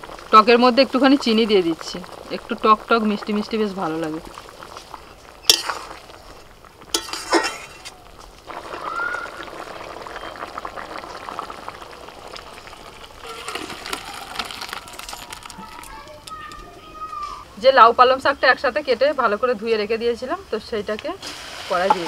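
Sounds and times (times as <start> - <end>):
curry bubbling: 0.0 - 19.4, 20.2 - 22.0
ladle stirring: 4.2 - 8.8, 12.3 - 16.9.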